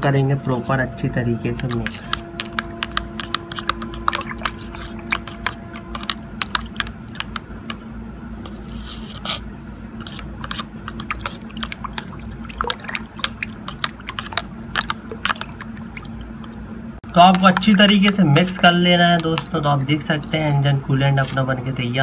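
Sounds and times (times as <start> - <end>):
liquid swirling: 1.5 - 22.0
rod knocking against plastic bucket: 1.6 - 7.8.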